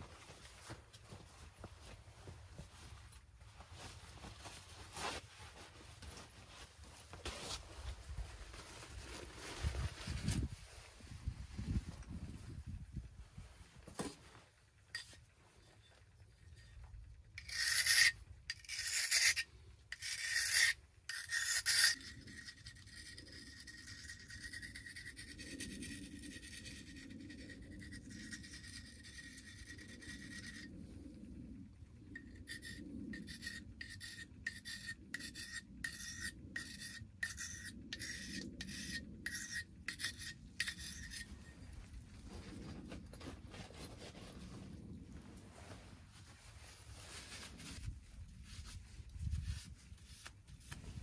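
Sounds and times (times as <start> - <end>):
knife blade sharpening strokes: 32.5 - 41.3.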